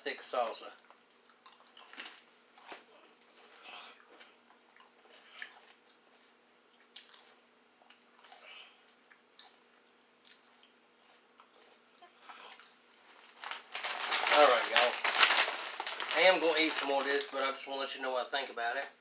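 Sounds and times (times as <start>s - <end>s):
faint steady hum: 0.0s - 19.0s
tortilla chip crunching: 13.4s - 17.3s.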